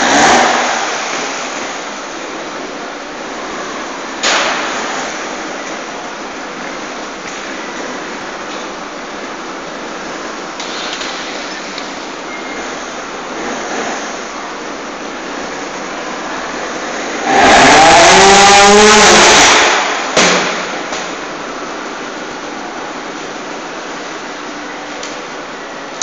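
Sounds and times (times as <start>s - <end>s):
motorcycle engine revving: 0.0s - 1.9s, 17.2s - 20.2s
steady background noise: 0.0s - 26.0s.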